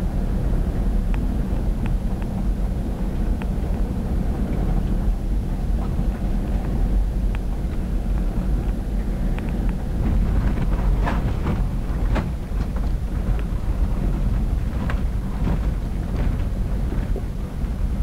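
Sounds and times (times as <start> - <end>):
engine and drivetrain rumble: 0.0 - 18.0
vehicle body knocks and rattles: 9.9 - 18.0.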